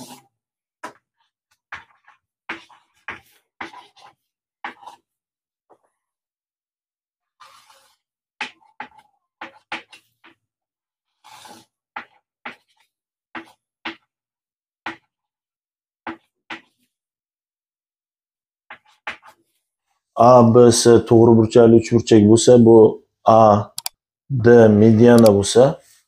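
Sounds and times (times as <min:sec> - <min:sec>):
chalk tapping and scraping: 0:00.0 - 0:06.0, 0:07.3 - 0:14.2, 0:14.8 - 0:15.3, 0:16.0 - 0:17.0, 0:18.6 - 0:20.1.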